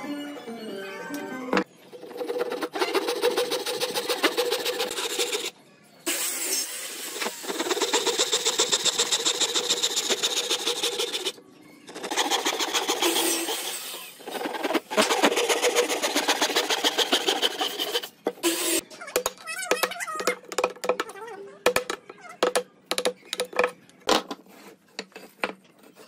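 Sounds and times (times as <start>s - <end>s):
handsaw cutting wood: 2.0s - 5.5s, 7.2s - 18.1s.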